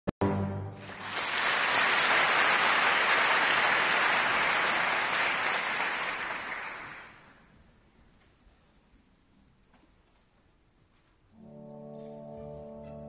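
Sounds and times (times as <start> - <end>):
audience applauding: 0.7 - 7.5.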